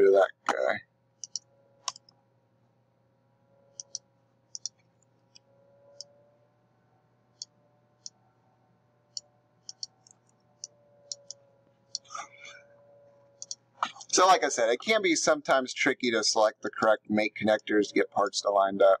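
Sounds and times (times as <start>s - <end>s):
faint steady hum: 0.0s - 19.0s
mouse button clicks: 4.6s - 4.8s.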